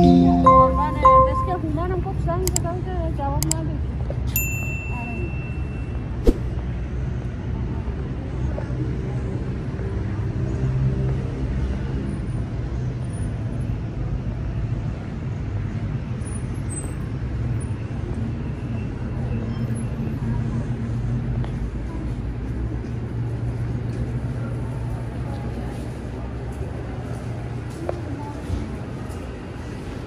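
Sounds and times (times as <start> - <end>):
short high beep: 0.0 - 1.6.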